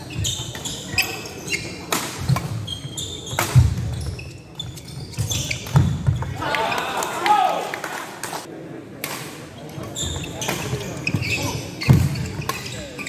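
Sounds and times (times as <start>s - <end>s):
shoes squeaking on wooden floor: 0.0s - 6.4s, 9.8s - 13.0s.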